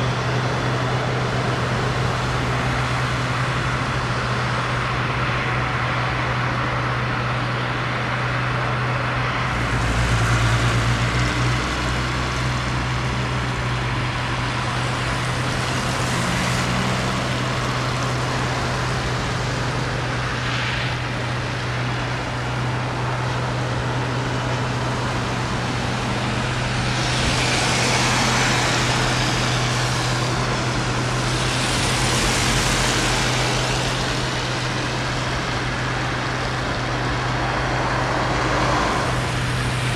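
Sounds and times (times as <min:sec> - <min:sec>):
pump engine running: 0:07.6 - 0:39.9.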